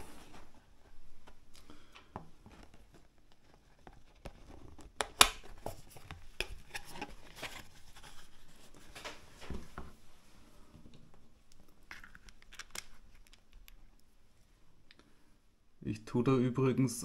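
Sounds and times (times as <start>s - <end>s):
rustling: 0.0s - 15.0s.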